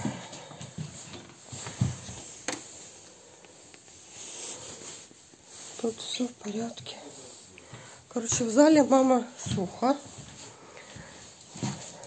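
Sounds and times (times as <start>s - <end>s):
footsteps on laminate floor: 0.0s - 2.5s, 8.2s - 12.0s.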